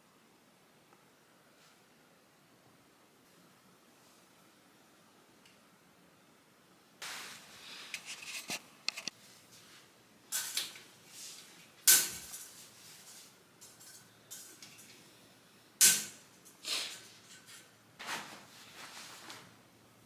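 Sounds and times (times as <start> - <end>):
bedding rustling: 18.0 - 19.5.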